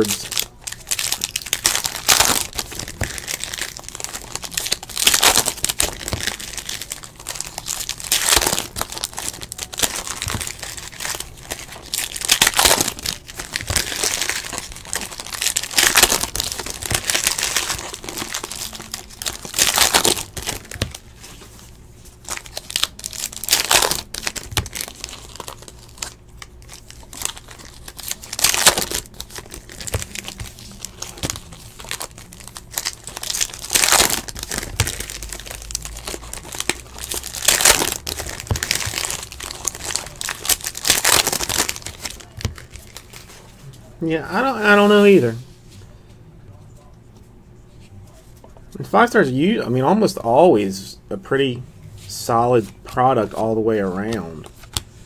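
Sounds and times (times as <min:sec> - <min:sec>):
foil wrappers tearing and crinkling: 0:00.0 - 0:43.4.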